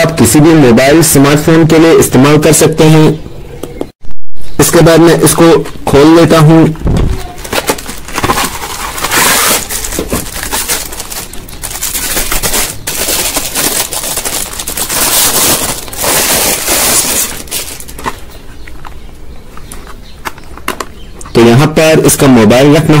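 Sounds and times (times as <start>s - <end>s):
plastic shrink wrap crinkling: 7.2s - 18.3s.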